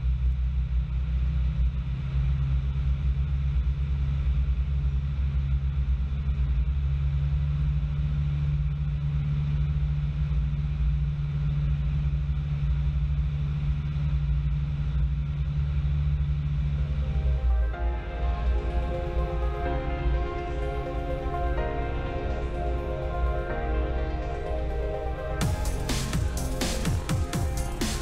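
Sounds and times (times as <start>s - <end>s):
airplane engine and propeller: 15.1s - 28.0s.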